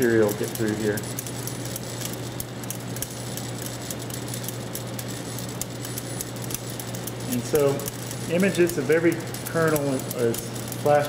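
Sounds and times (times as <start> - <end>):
grain kernels ticking and rattling: 0.0 - 11.0
vibratory feeder humming: 0.0 - 11.0.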